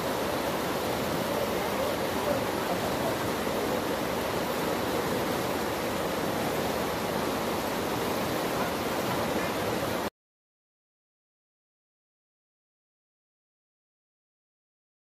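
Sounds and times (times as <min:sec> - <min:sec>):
stream rushing over stones: 0:00.0 - 0:10.1.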